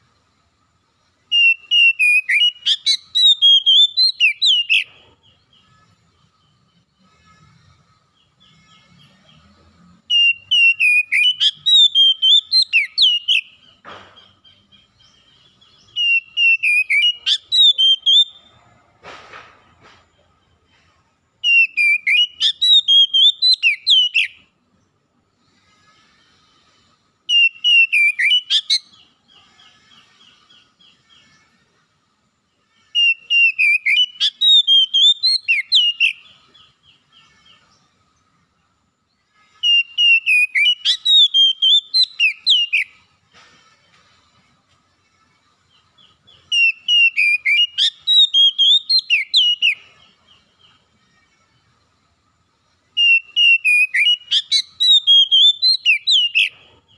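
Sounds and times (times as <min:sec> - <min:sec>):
bird singing warbling whistles: 0:01.3 - 0:05.0, 0:10.1 - 0:13.7, 0:15.7 - 0:18.5, 0:21.4 - 0:24.4, 0:27.3 - 0:29.0, 0:33.0 - 0:36.4, 0:39.6 - 0:43.0, 0:46.1 - 0:50.0, 0:52.9 - 0:56.8.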